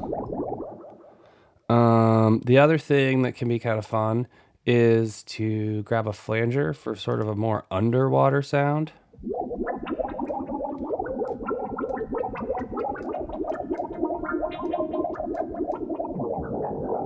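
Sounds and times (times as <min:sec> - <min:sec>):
synthesized bubbly water blips: 0:00.0 - 0:01.2, 0:09.2 - 0:17.0.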